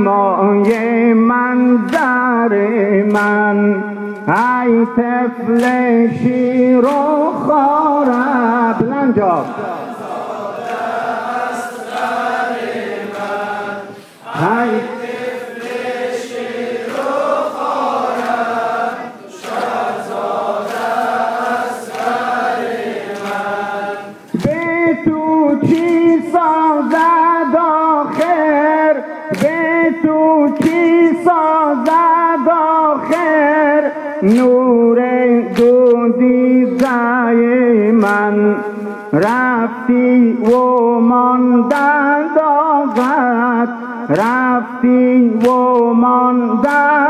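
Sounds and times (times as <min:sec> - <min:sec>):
men chanting in chorus: 0:00.0 - 0:47.0
chest-beating slaps: 0:09.4 - 0:24.8.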